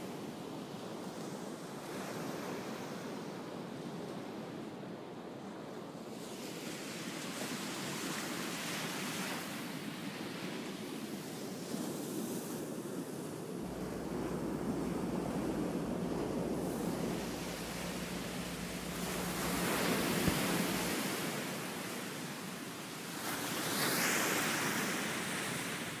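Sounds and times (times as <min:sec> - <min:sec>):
steady rushing noise: 0:13.6 - 0:23.4.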